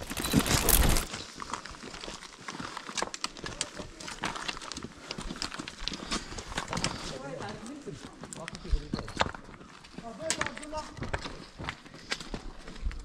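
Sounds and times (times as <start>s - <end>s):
boots crunching on gravel: 0.0s - 2.8s.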